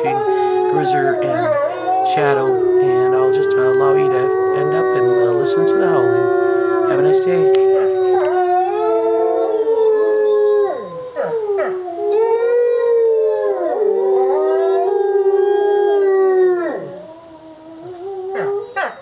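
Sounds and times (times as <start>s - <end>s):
wolves howling: 0.0s - 19.0s.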